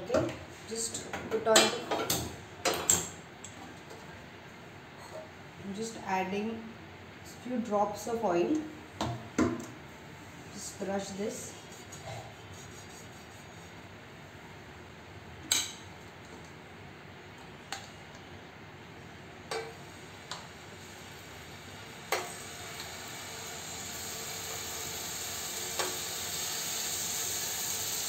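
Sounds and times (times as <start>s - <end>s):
chicken sizzling: 19.5s - 28.0s.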